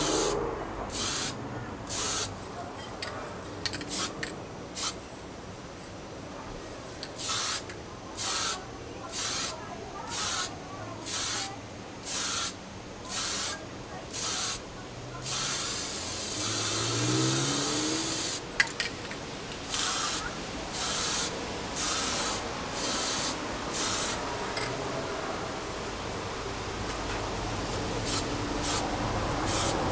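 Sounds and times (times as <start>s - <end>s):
spray paint can hissing: 0.0s - 2.3s, 3.9s - 4.2s, 4.8s - 5.0s, 7.2s - 14.6s, 15.2s - 18.4s, 19.6s - 24.2s, 27.7s - 29.9s.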